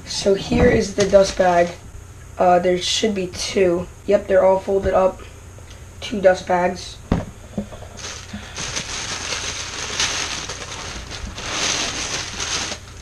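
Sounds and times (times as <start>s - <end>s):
tissue paper rustling and crinkling: 8.0s - 13.0s.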